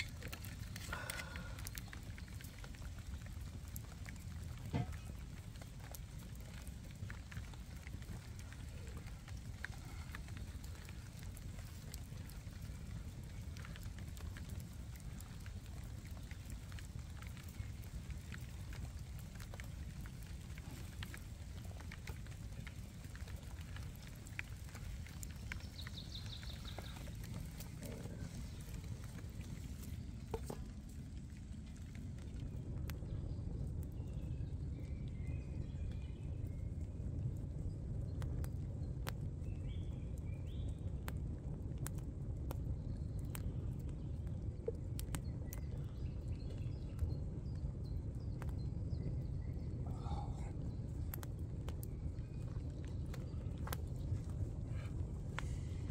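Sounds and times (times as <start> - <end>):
birds chirping: 0.0 - 41.1, 42.5 - 55.9
fire crackling and popping: 0.0 - 55.9
low steady rumble: 0.0 - 55.9
bird chirping: 25.3 - 29.0.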